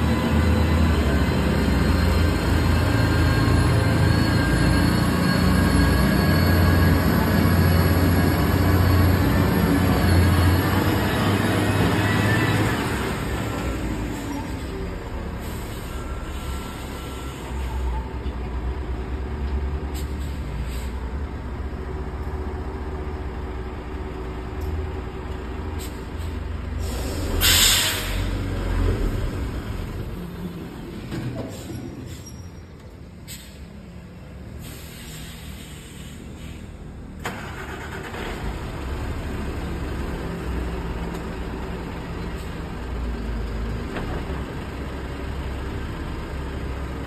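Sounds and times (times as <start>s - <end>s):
air brakes hissing: 13.9s - 18.2s, 19.9s - 21.2s, 25.7s - 28.5s, 31.4s - 33.8s, 34.5s - 38.2s.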